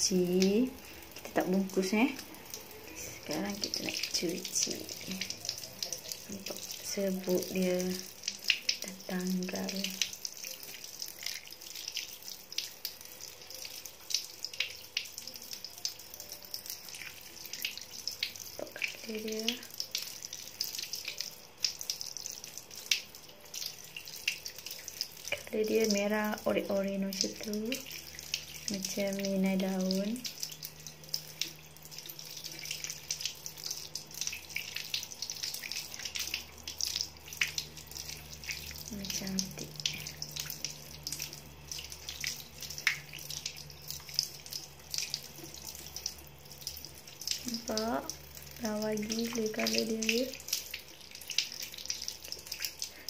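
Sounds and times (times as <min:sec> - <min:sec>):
tap water splashing over hand: 0:24.2 - 0:48.2, 0:49.0 - 0:53.0.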